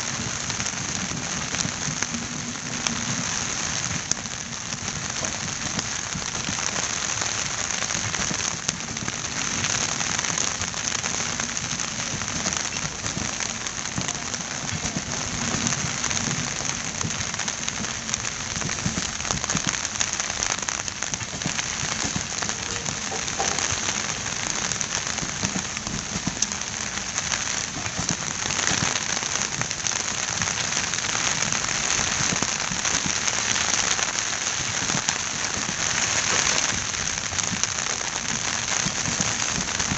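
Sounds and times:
rain: 0:00.0 - 0:39.9
train coaches rolling past: 0:22.4 - 0:24.6.

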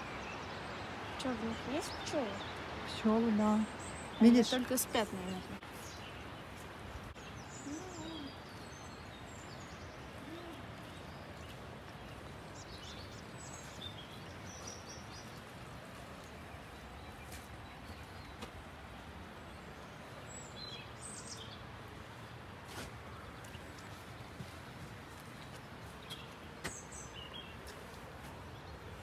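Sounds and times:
birds chirping and calling: 0:00.0 - 0:06.2, 0:07.2 - 0:15.4
outdoor background noise: 0:00.0 - 0:29.0.

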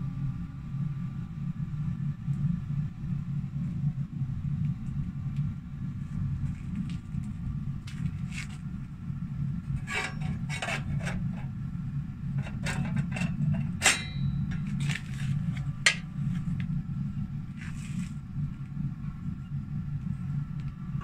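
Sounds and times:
steady low rumble: 0:00.0 - 0:21.0
metallic clink: 0:13.8 - 0:14.8.

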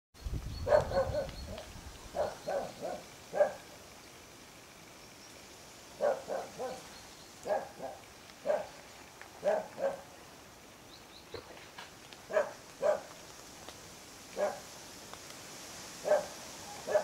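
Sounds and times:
dog barking: 0:00.7 - 0:01.3, 0:02.2 - 0:03.7, 0:06.0 - 0:06.8, 0:07.4 - 0:08.8, 0:09.4 - 0:10.1, 0:12.3 - 0:13.1, 0:14.4 - 0:14.6, 0:16.0 - 0:17.0.

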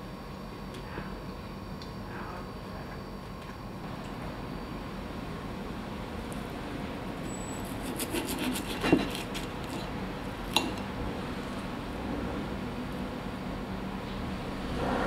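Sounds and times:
knife sawing through meat: 0:07.7 - 0:09.5.

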